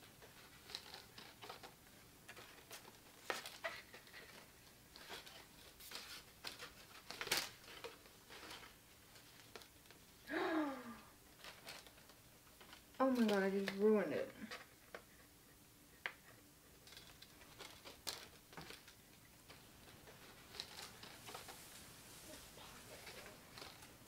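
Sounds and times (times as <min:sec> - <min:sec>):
paper banner rustling: 0:00.0 - 0:10.1, 0:16.8 - 0:24.0
woman's ohh of dismay: 0:10.3 - 0:11.1.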